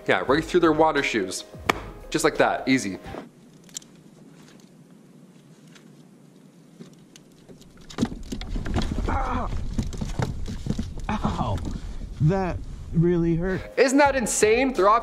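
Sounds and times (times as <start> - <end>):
faint clicks and rustling: 3.4 - 12.0
wind rumble on microphone: 8.6 - 13.5.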